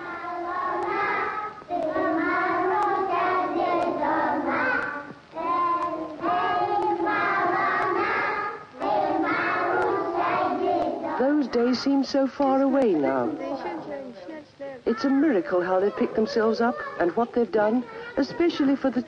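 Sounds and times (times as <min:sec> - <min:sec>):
children singing: 0:00.0 - 0:11.4.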